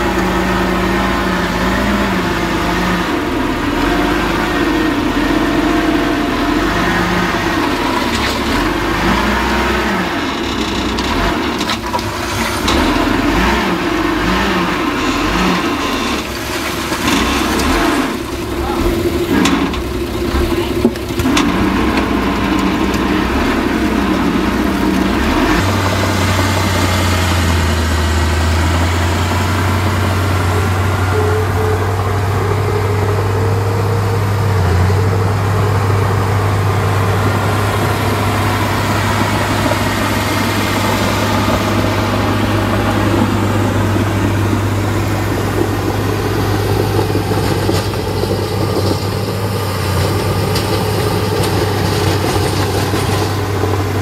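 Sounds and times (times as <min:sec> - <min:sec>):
heavy diesel engine running: 0:00.0 - 0:54.0.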